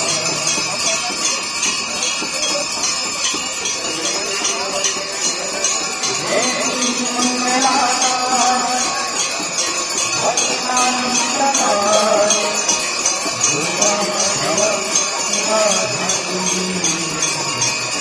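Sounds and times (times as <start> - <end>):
hand bells ringing: 0.0 - 18.0
voices singing a hymn: 10.2 - 17.6.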